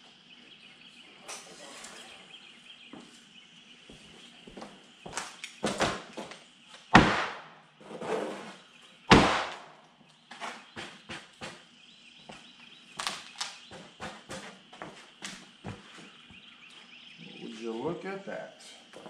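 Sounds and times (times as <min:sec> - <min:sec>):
footsteps: 0:02.9 - 0:06.4, 0:13.7 - 0:16.9.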